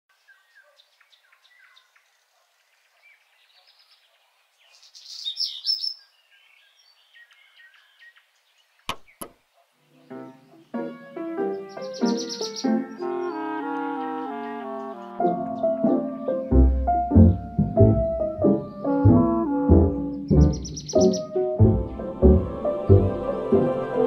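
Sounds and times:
birds chirping and singing: 0:00.2 - 0:09.3, 0:10.0 - 0:23.3.

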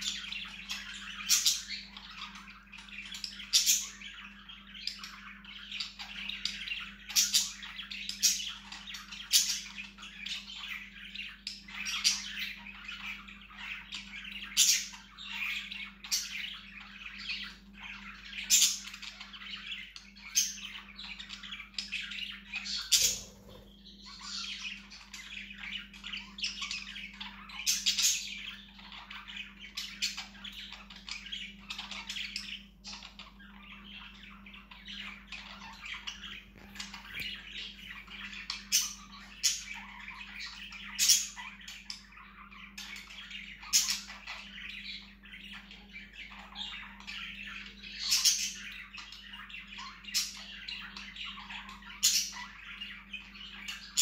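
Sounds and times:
budgerigar chattering and warbling: 0:00.0 - 0:54.0
sharp loud bird chirps: 0:22.6 - 0:24.5.

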